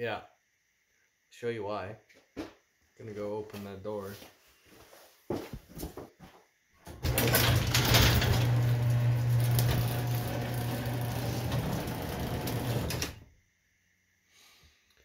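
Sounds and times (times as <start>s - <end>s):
garage door motor hum: 6.8s - 13.3s.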